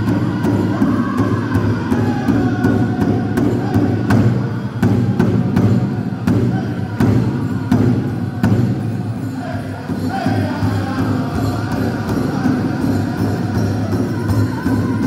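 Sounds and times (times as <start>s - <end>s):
large drum struck in unison: 0.0s - 9.2s
singers' voices: 0.0s - 15.0s.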